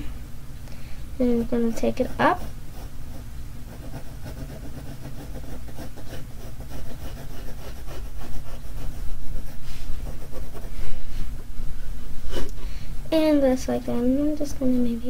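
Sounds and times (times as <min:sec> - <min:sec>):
pencil scratching on paper: 0:01.3 - 0:11.5.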